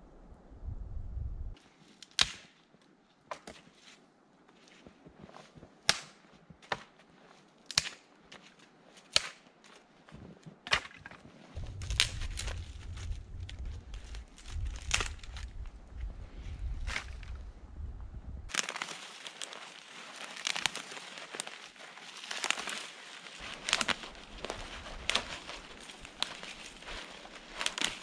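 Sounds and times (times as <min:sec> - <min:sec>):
twigs snapping underfoot: 0:01.8 - 0:03.6, 0:07.6 - 0:08.4, 0:09.0 - 0:09.8, 0:10.6 - 0:17.5, 0:18.5 - 0:28.0
footsteps crunching through snow: 0:11.5 - 0:17.5, 0:18.5 - 0:28.0.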